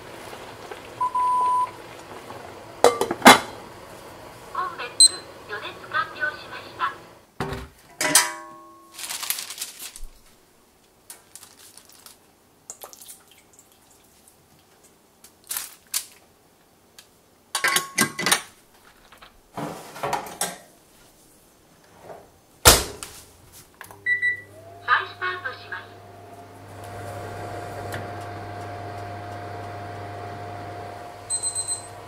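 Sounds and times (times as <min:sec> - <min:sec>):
metal baking tray clanging: 0:08.0 - 0:08.9
baking paper rustling: 0:08.9 - 0:12.3, 0:15.3 - 0:16.2, 0:22.7 - 0:23.8.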